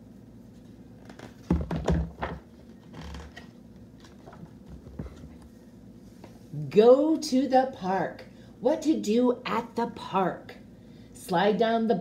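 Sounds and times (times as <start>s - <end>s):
microphone handling thumps: 1.2s - 3.4s.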